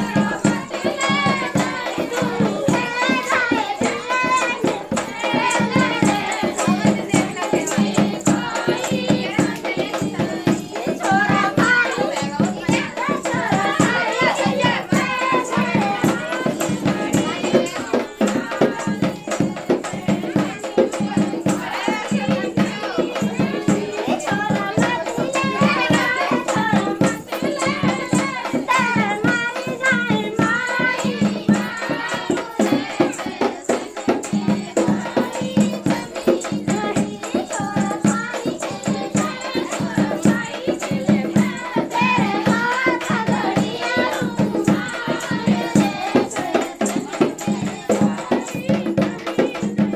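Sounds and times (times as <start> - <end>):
fast drum beat: 0.0 - 49.9
jingling percussion: 0.0 - 49.9
women singing folk song: 0.0 - 49.9.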